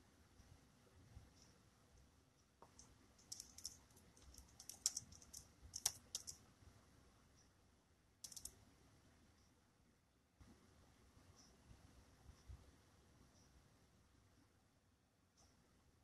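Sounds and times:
light typing clicks: 0:02.6 - 0:06.4, 0:08.2 - 0:08.6.

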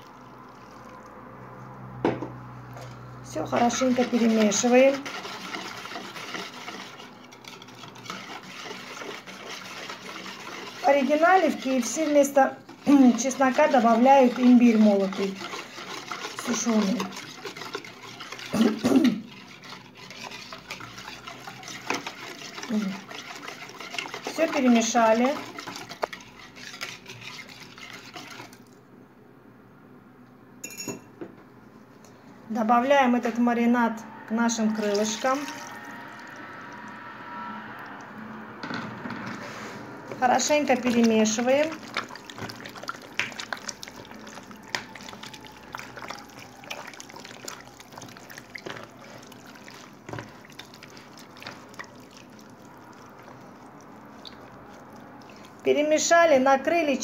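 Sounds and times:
wet squelches and sloshes: 0:00.0 - 0:02.0, 0:02.6 - 0:28.8, 0:39.4 - 0:56.1
whisk scraping in glass bowl: 0:03.3 - 0:28.7, 0:34.3 - 0:36.0, 0:40.1 - 0:57.0
ringing clink on glass bowl: 0:30.6 - 0:31.1.

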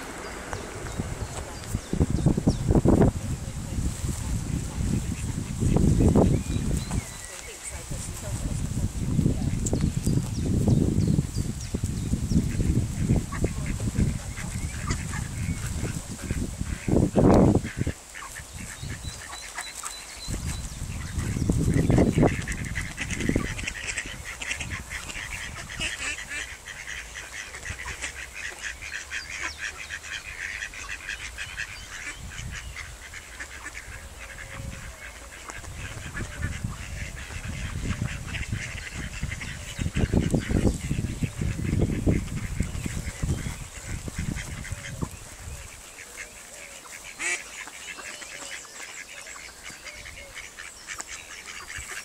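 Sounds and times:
low bumps: 0:00.0 - 0:07.1
ducks calling: 0:00.0 - 0:52.0.

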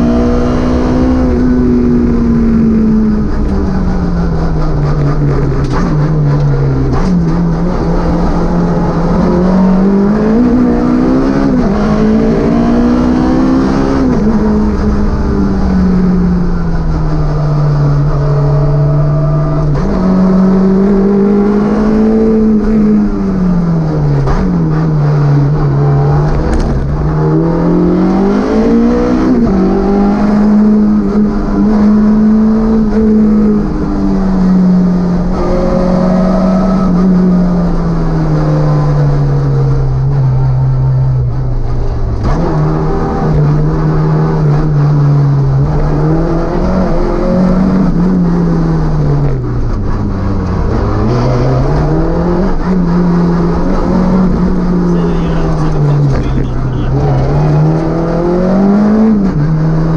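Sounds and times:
rally car engine revving: 0:00.0 - 0:59.9.

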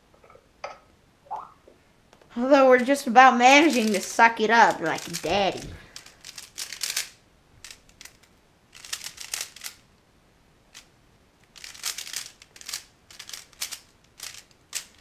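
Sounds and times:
plastic puzzle cube clacking: 0:04.7 - 0:09.8, 0:11.5 - 0:15.0.

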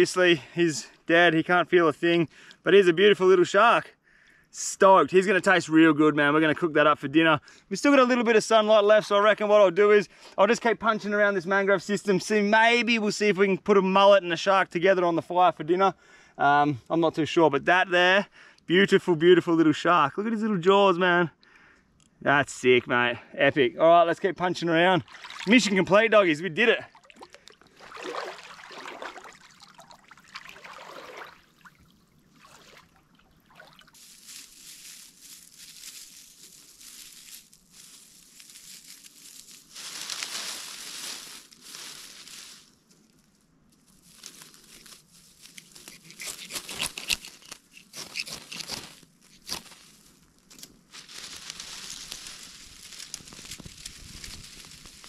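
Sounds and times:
person wading through water: 0:24.9 - 0:26.0, 0:26.8 - 0:34.6
dry grass and leaves rustling: 0:25.0 - 0:26.0, 0:26.9 - 0:55.0
crackly snaps: 0:51.4 - 0:55.0.

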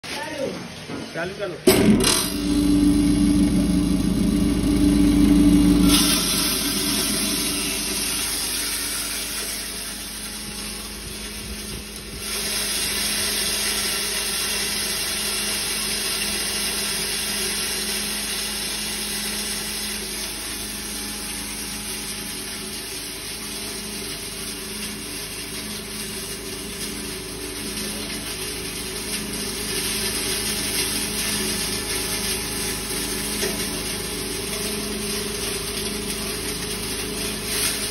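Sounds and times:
grain being milled: 0:01.7 - 0:10.3
grinder motor hum: 0:01.7 - 0:37.9.

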